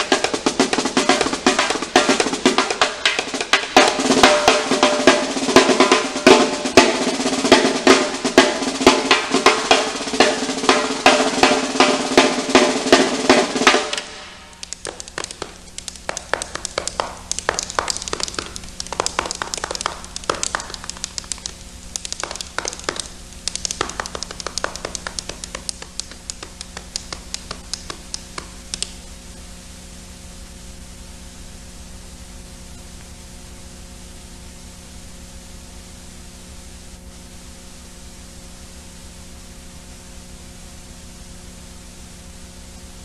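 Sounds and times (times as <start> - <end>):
sharp taps and clicks: 0.0 - 4.4, 13.7 - 29.0
steady hiss: 0.0 - 43.0.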